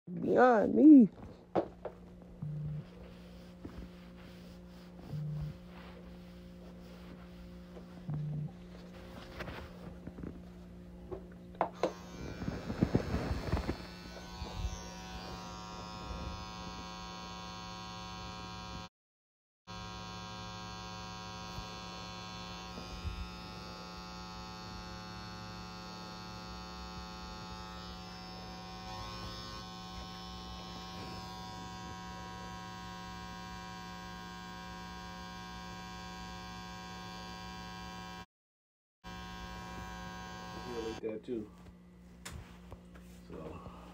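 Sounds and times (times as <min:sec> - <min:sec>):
tattoo machine buzzing: 0:11.6 - 0:18.9, 0:19.7 - 0:38.3, 0:39.0 - 0:41.1.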